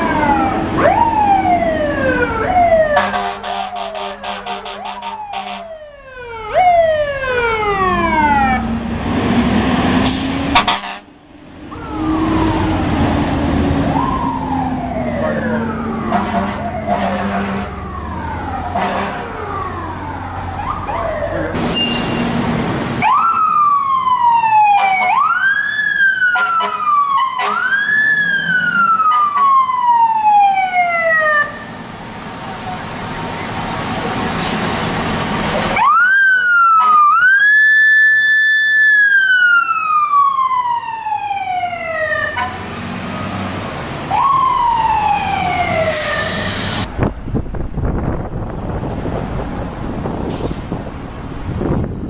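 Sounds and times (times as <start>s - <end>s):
electronic siren sweeping: 0.0s - 8.9s, 11.7s - 21.6s, 35.1s - 46.9s
mechanical siren rise and fall: 0.0s - 8.9s, 11.7s - 17.0s, 17.6s - 21.6s, 23.0s - 31.6s, 35.7s - 42.5s, 44.1s - 46.9s
truck engine: 0.0s - 30.6s, 31.4s - 37.4s, 38.9s - 52.0s.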